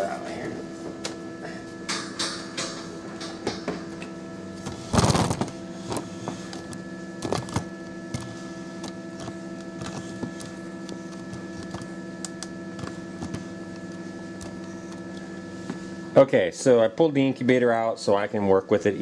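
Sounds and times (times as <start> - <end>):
electrical hum: 0.0 - 19.0
plastic scraping: 4.7 - 11.9.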